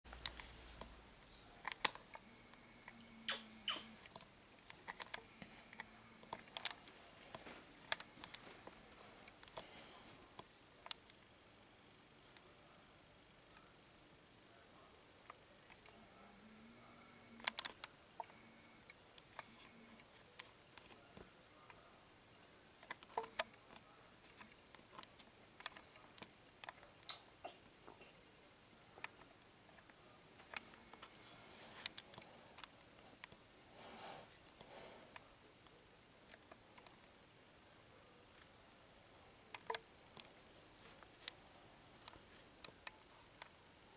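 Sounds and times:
faint clicks and ticks: 0.1s - 11.3s, 15.2s - 21.9s, 22.8s - 33.5s, 38.2s - 38.6s, 39.5s - 43.9s.

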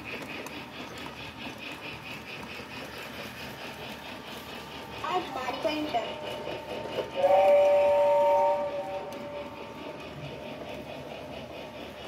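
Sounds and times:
toy train running noise: 0.0s - 12.0s
toy train steam whistle: 5.2s - 10.3s.

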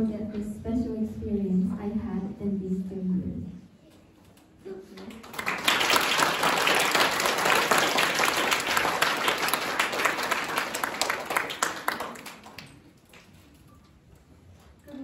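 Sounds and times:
audience applauding: 5.0s - 12.9s.

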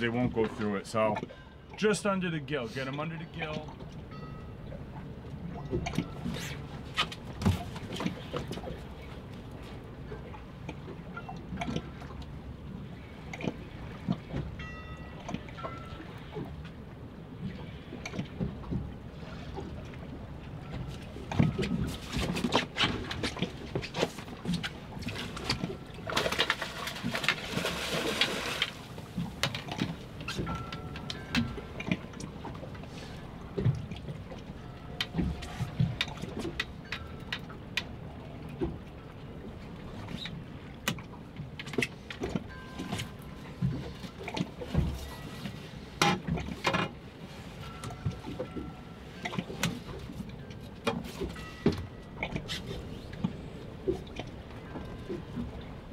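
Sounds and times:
water lapping against hull: 0.0s - 55.9s
water splashing: 17.5s - 36.9s.

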